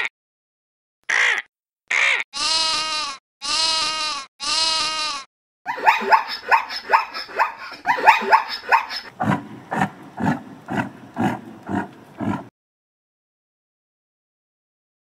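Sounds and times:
lamb bleating: 0:01.1 - 0:05.3
zebra barking yelps: 0:05.7 - 0:12.5.

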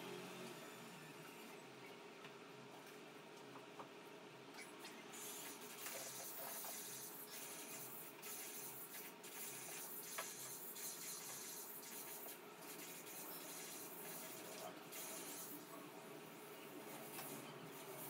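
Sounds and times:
tool scratching on canvas: 0:05.4 - 0:15.6.

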